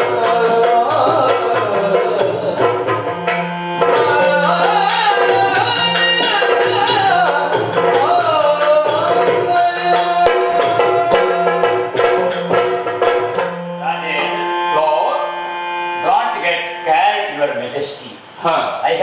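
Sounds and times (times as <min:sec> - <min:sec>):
drum strokes: 0:00.0 - 0:14.6.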